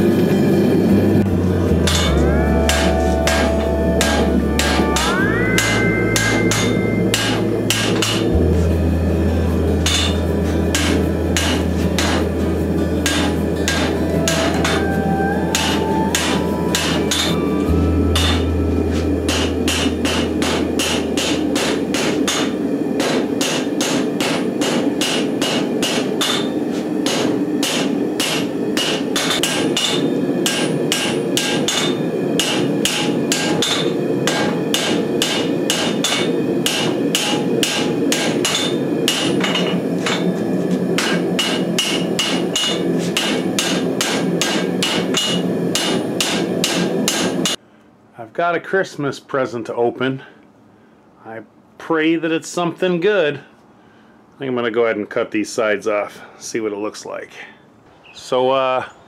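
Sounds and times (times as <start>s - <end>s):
steady hum: 0.0s - 47.8s
hammer ringing on anvil: 1.7s - 47.6s.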